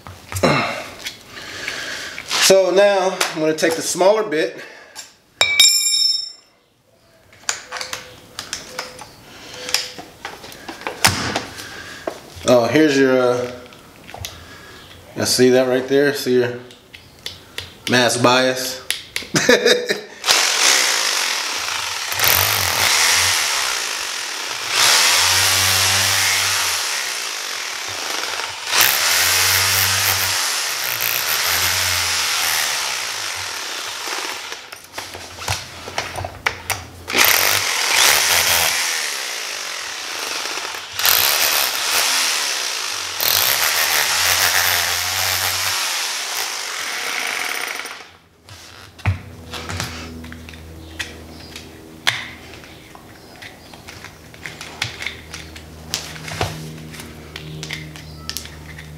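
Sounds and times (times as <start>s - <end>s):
power drill boring: 20.2s - 34.8s, 37.1s - 48.8s.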